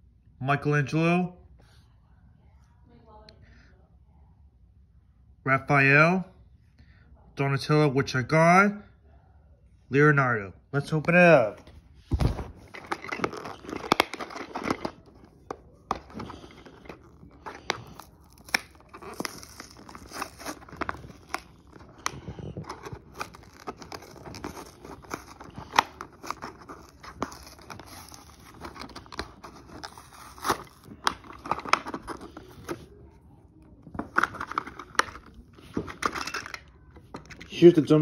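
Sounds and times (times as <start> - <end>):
plastic and cardboard tearing: 12.2 - 32.9.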